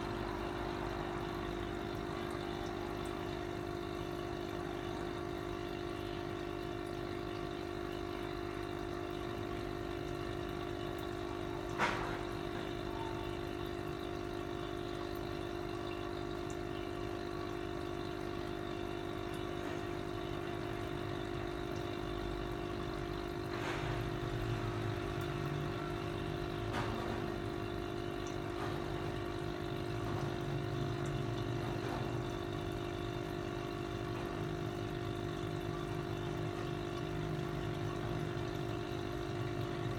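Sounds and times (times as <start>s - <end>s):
aquarium air pump humming: 0.0s - 39.9s.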